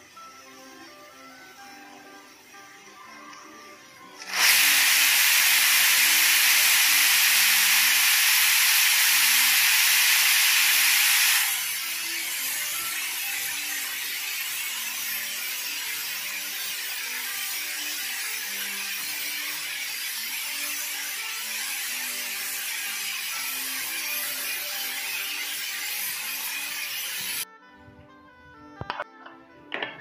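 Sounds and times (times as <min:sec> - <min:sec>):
pressure cooker steam hissing: 0:04.2 - 0:27.4.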